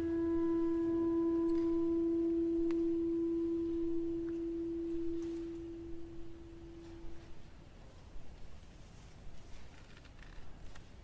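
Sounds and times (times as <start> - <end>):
ensemble holding a note: 0.0 - 7.7.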